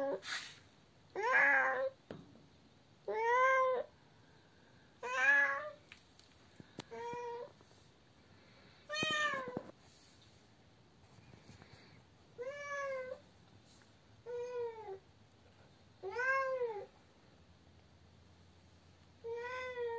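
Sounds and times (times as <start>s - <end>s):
cat meowing: 16.0s - 16.9s, 19.2s - 19.9s.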